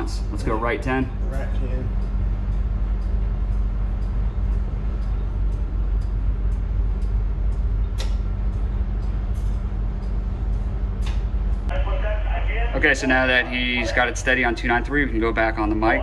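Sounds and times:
low machinery hum: 0.0s - 16.0s.

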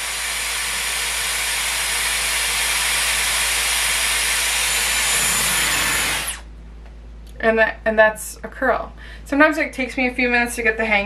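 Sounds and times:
hair styler blowing air: 0.0s - 6.4s
motor spinning down whine: 0.0s - 6.4s.

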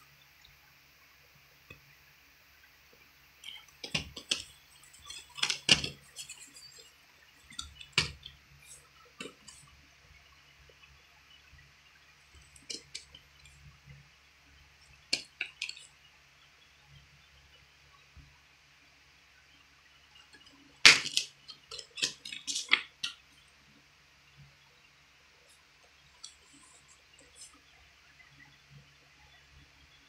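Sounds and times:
plastic cases clicking and clacking: 3.4s - 6.9s, 20.9s - 23.2s.

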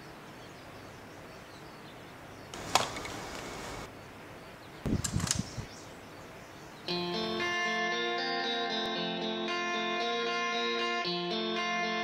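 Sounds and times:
sharp click: 2.6s - 3.4s, 4.9s - 5.7s
cassette radio buttons clunking: 2.6s - 3.5s.

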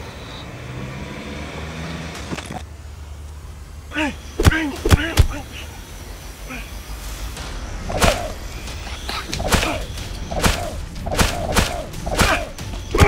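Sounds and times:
whip-like hits with whooshes: 7.9s - 8.4s, 9.2s - 13.0s.

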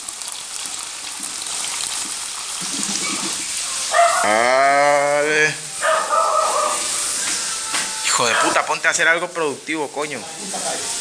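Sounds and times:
water pouring into plastic cup: 0.0s - 4.3s.

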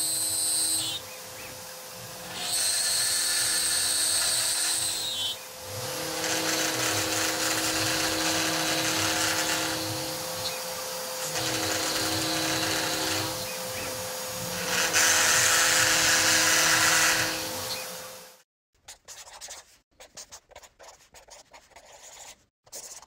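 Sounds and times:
router spindle whining: 0.0s - 18.4s.

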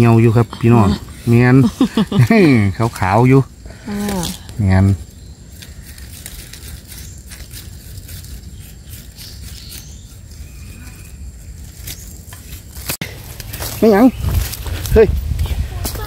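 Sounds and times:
knife scraping soil off stem: 5.5s - 13.6s.

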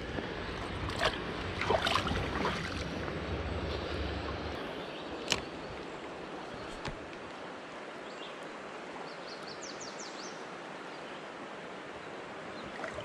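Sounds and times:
water splashes: 0.0s - 4.6s, 12.5s - 13.0s
shallow river water rushing: 0.0s - 13.0s.

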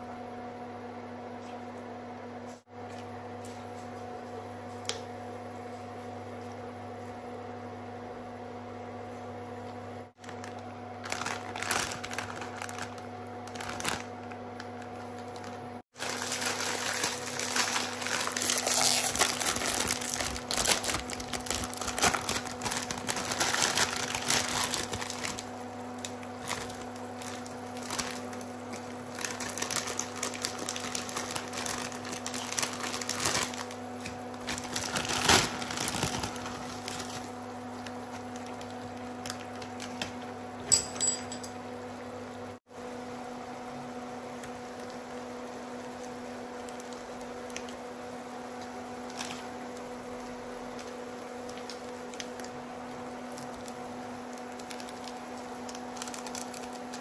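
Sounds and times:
steady electrical hum: 0.0s - 57.0s
crinkling handling noise: 10.2s - 41.5s, 49.0s - 52.6s, 53.2s - 57.0s.

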